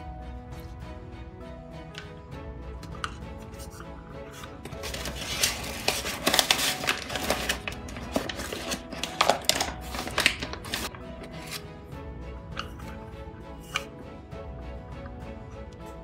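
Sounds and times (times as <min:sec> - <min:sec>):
soft background music: 0:00.0 - 0:16.0
paper bag rustling and crinkling: 0:04.4 - 0:11.6.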